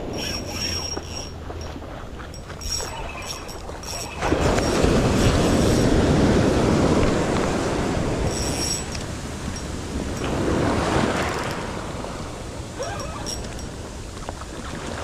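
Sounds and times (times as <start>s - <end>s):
wind buffeting microphone: 0.0s - 15.0s
ocean surf breaking: 3.8s - 15.0s.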